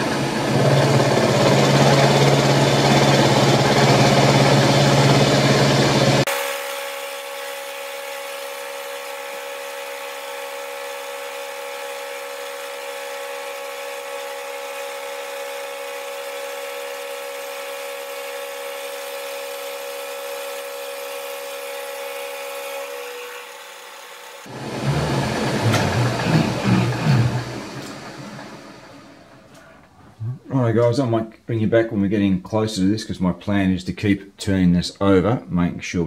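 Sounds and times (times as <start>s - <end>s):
milling machine hum: 0.0s - 30.1s.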